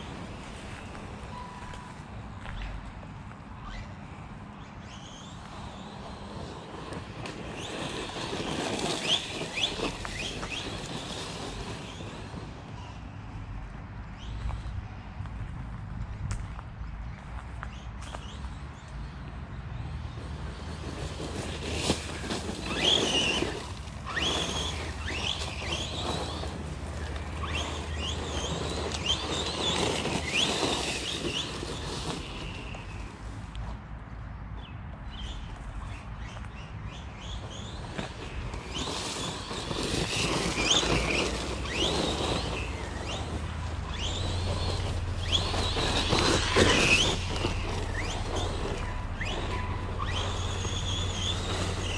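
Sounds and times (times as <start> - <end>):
tyre and ground noise: 0.0 - 51.9
rc car electric motor whining: 4.8 - 13.0, 19.9 - 33.3, 37.0 - 51.9.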